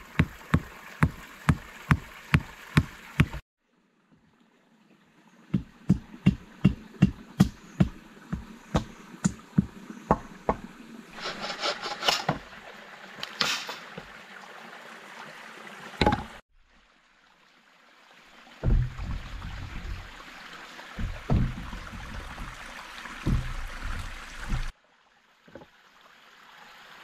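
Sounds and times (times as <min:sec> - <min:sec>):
hatchet striking wood: 0:05.6 - 0:10.7, 0:21.0 - 0:22.6
log thumping on log: 0:05.6 - 0:10.7, 0:16.0 - 0:16.4, 0:18.6 - 0:20.2, 0:21.0 - 0:24.7.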